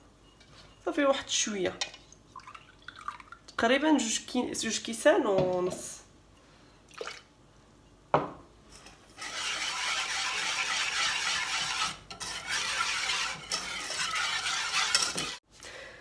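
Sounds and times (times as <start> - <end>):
whisk scraping in a saucepan: 8.7 - 15.4.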